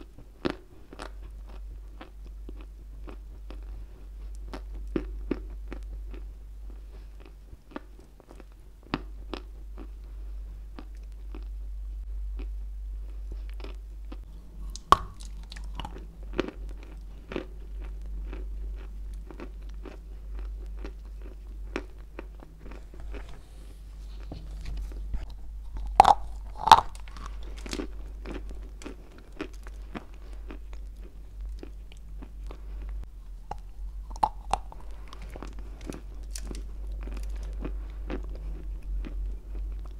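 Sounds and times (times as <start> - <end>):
chewing crunchy clay: 12.4 - 23.4, 24.1 - 39.9.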